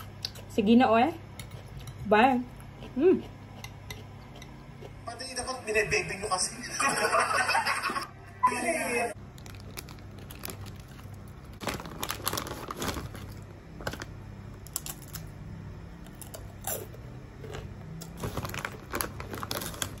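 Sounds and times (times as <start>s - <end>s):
plastic chip bag crinkling: 9.2s - 15.2s, 17.6s - 20.0s
chip crunching: 9.2s - 15.3s, 16.0s - 20.0s.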